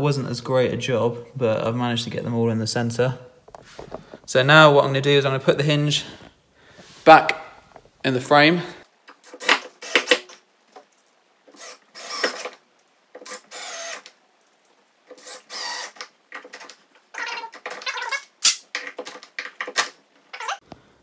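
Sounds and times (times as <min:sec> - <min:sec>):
cordless drill driving screws: 0:09.4 - 0:10.3, 0:11.6 - 0:12.6, 0:13.2 - 0:14.1, 0:15.1 - 0:16.7.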